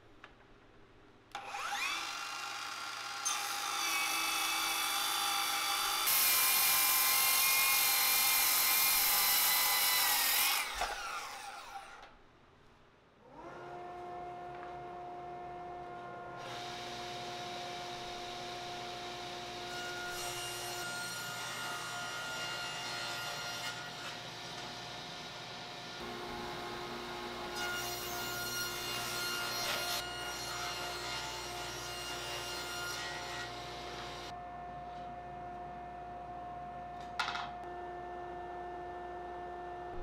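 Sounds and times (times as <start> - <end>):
circular saw cutting wood: 1.4 - 12.0, 13.3 - 34.4
table saw motor humming: 1.4 - 12.0, 16.3 - 20.8.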